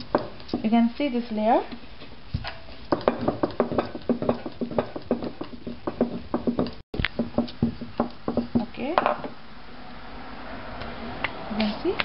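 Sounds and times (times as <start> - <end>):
rolling pin knocking on board: 2.9 - 9.3.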